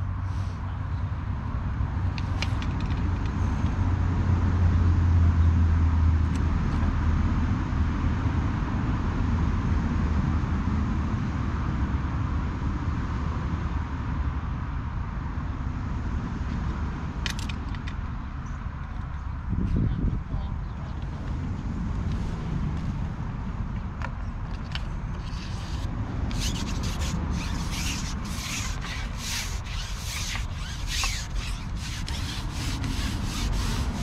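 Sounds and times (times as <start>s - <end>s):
motor humming: 25.2s - 34.0s.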